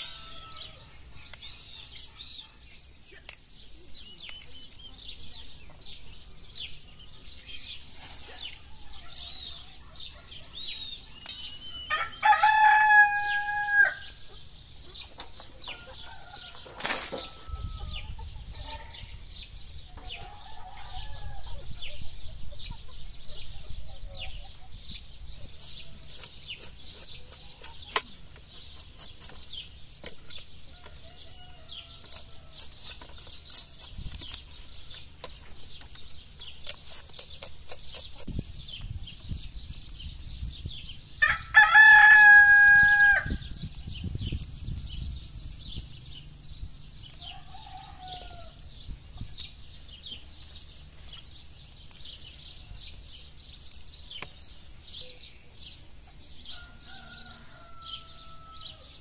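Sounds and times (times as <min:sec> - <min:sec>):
rooster crowing: 0:00.0 - 0:00.9, 0:11.9 - 0:14.1, 0:15.7 - 0:18.0, 0:41.2 - 0:43.4, 0:47.3 - 0:48.6, 0:56.4 - 0:59.0
small bird chirps: 0:00.0 - 0:41.1, 0:42.3 - 0:59.0.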